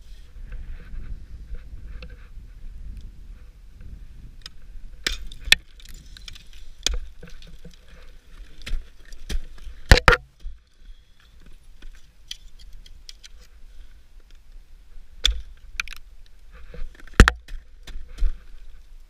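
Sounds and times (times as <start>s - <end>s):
ice axe striking ice: 5.0s - 7.6s, 8.3s - 10.6s, 15.2s - 16.0s, 17.1s - 18.4s.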